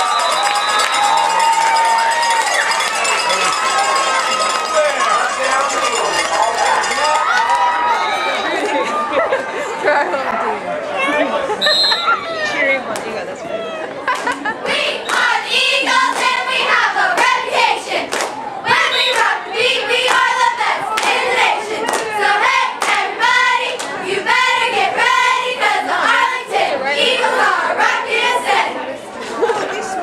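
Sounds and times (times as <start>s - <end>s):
young voices chanting: 14.5s - 28.9s
hand claps: 18.1s - 18.4s.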